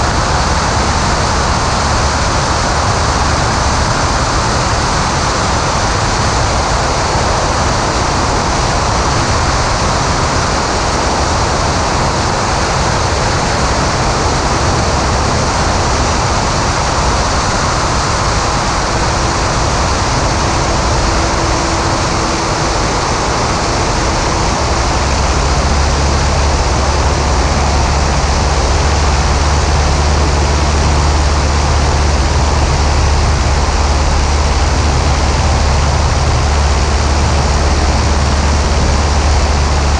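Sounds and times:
airflow rushing: 0.0 - 39.9
light aircraft engine drone: 0.0 - 39.9.

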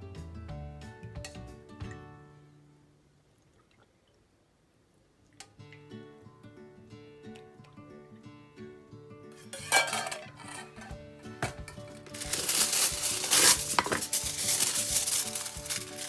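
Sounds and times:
background music: 0.0 - 2.9, 5.5 - 16.0
metal ladle knocking ceramic cups: 9.6 - 11.9
aluminium foil crinkling: 11.8 - 16.0.

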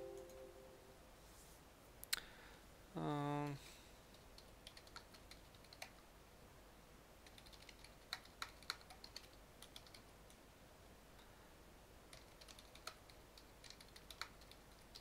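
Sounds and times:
keyboard typing: 4.1 - 6.0, 7.2 - 10.1, 12.1 - 15.0.

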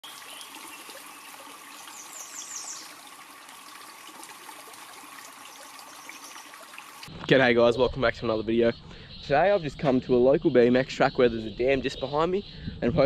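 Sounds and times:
bird chirping: 0.0 - 3.0, 5.5 - 6.6, 7.8 - 13.0
outdoor hiss: 0.0 - 7.1.

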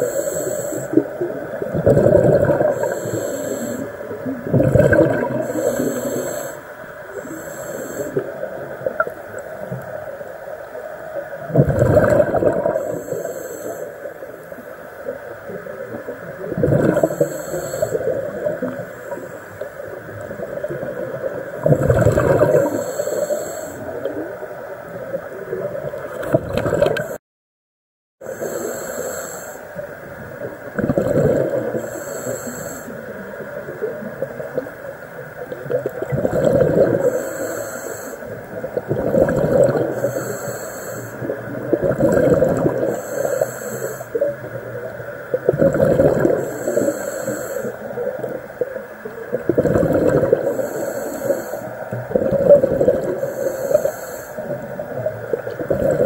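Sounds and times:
regulator breath hiss: 0.0 - 1.4, 2.7 - 4.4, 5.4 - 8.8, 12.8 - 15.5, 17.0 - 20.0, 22.5 - 24.3, 28.2 - 29.9, 31.6 - 33.4, 37.0 - 38.7, 39.9 - 41.7, 42.8 - 45.0, 46.3 - 48.2, 50.4 - 52.0, 53.0 - 55.0
diver exhaling bubbles underwater: 0.7 - 9.8, 11.4 - 13.2, 15.8 - 19.3, 19.9 - 27.2, 30.2 - 31.9, 35.5 - 37.5, 38.5 - 40.4, 41.2 - 47.0, 47.6 - 56.0.

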